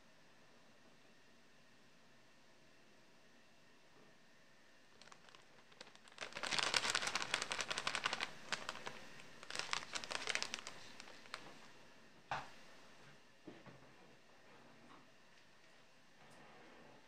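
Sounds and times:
plastic packet crinkling: 5.0s - 11.7s.

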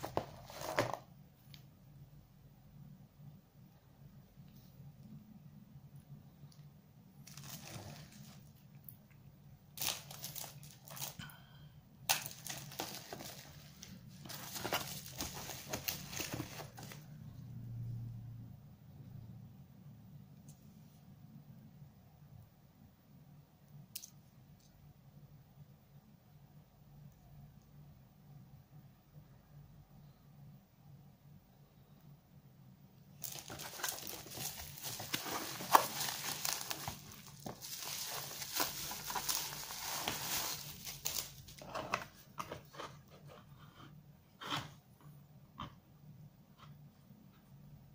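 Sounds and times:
bubble wrap crinkling: 7.2s - 8.6s, 9.7s - 11.3s, 12.1s - 17.1s, 33.2s - 41.7s.

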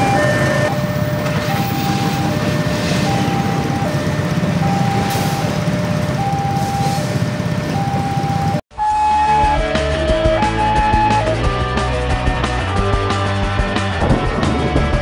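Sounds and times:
motorcycles idling: 0.0s - 8.6s
passing train rumble: 0.0s - 8.6s
level crossing alarm tones: 0.0s - 9.6s.

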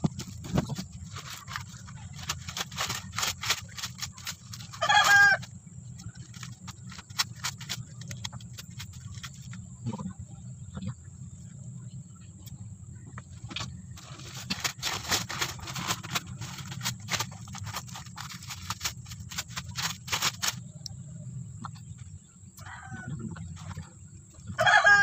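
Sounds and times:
packing material tearing and crinkling: 0.0s - 9.6s, 14.0s - 20.6s
steady low hum: 0.0s - 25.0s.

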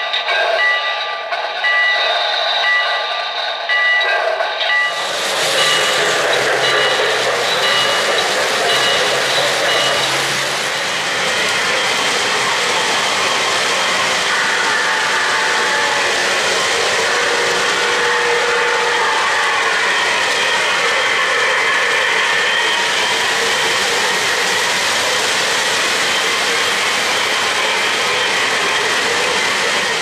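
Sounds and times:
model train bell ringing: 0.0s - 10.8s
model trains rolling on track: 0.0s - 30.0s.

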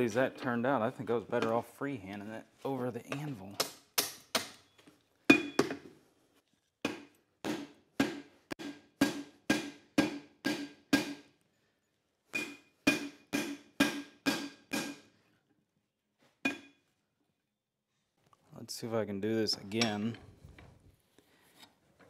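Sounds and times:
hammer striking steel on anvil: 6.9s - 11.3s, 12.4s - 15.1s, 16.5s - 16.8s, 19.8s - 20.1s.

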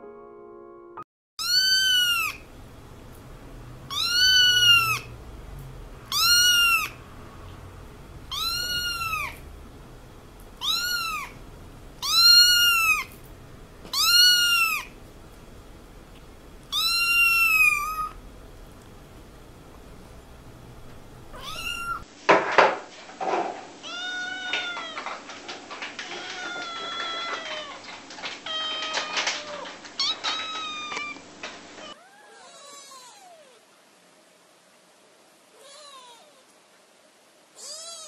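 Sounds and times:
kitten meowing: 1.4s - 2.4s, 3.9s - 5.1s, 6.1s - 7.0s, 8.3s - 9.4s, 10.6s - 11.4s, 12.0s - 13.1s, 13.9s - 15.0s, 16.7s - 18.2s, 21.3s - 22.0s, 37.6s - 38.0s.

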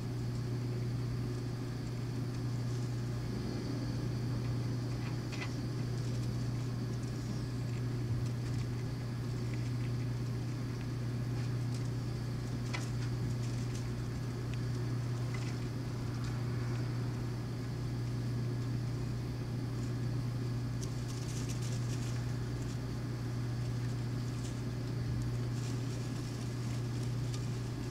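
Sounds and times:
low hum: 0.0s - 27.9s.

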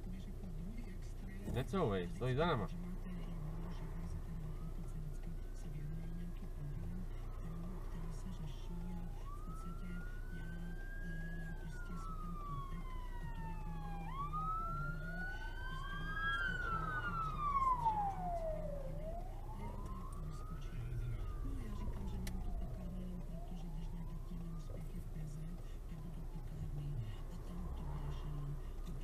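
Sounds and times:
car engine idling hum: 0.0s - 29.0s
ambulance siren wailing: 1.6s - 29.0s.

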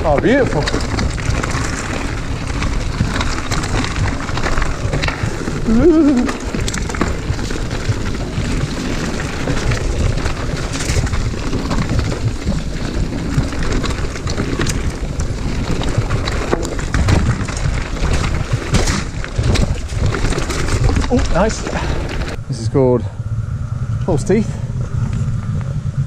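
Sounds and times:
bike clicks and rattles: 0.0s - 22.4s
low tyre rumble on gravel: 0.0s - 26.0s
wind buffeting microphone: 0.0s - 26.0s.

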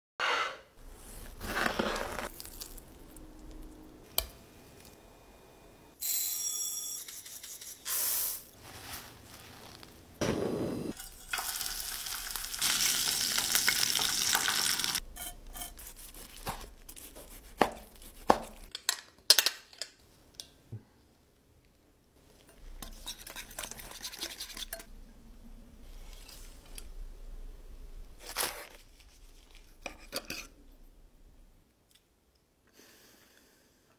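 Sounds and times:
fish sizzling in a frying pan: 11.2s - 15.0s.

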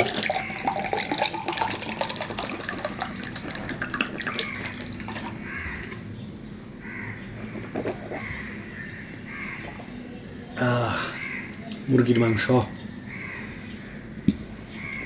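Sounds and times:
water pouring into glass: 0.0s - 6.0s.

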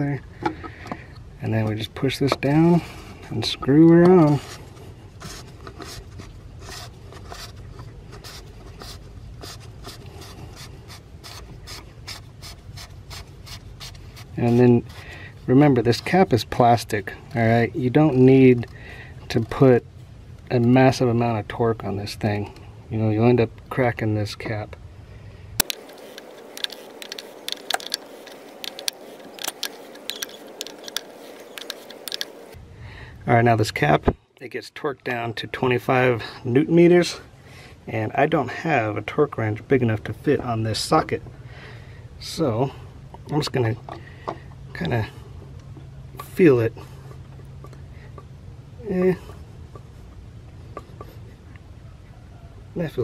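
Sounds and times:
plastic cap scraping on threads: 3.9s - 15.2s, 25.6s - 32.6s
ratchet clicking: 25.6s - 32.4s.

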